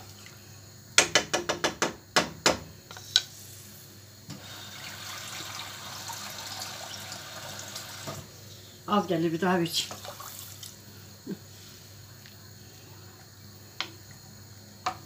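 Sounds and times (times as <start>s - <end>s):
tap water filling a bowl: 4.3s - 8.2s, 9.9s - 10.8s.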